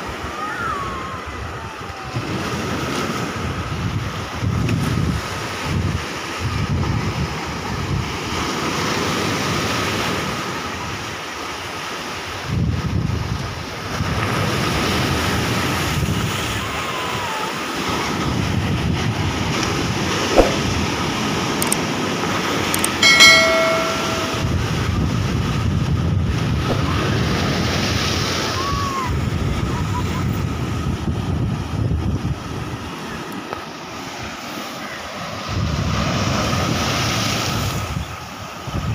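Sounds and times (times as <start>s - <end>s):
wind buffeting microphone: 1.2s - 8.4s, 12.4s - 16.5s, 18.1s - 22.1s, 23.0s - 33.2s
sharp click: 22.8s - 23.0s
short bright chime: 23.0s - 24.6s.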